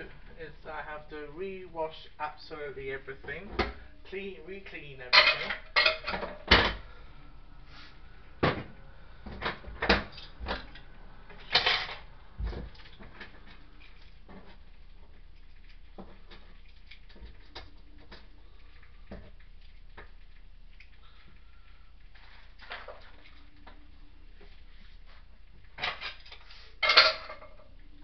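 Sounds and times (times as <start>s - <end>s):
dishes knocking and clunking: 5.1s - 6.9s, 26.8s - 27.6s.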